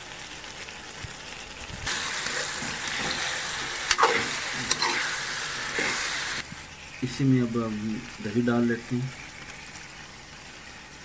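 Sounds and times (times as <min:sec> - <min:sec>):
food sizzling in hot oil: 0:00.0 - 0:11.0
spoon scraping metal pot: 0:03.9 - 0:06.0.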